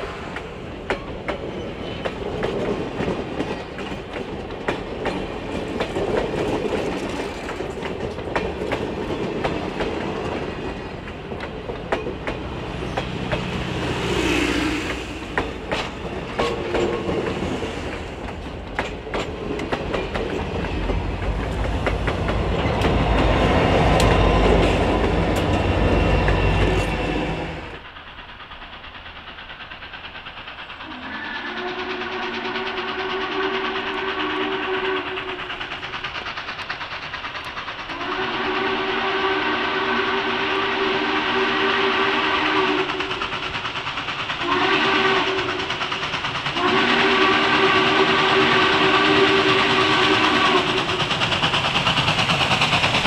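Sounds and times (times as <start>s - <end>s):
steam train rumbling past: 0.0s - 53.0s
steam whistle: 30.8s - 35.6s, 37.9s - 43.2s, 44.4s - 45.7s, 46.6s - 51.0s.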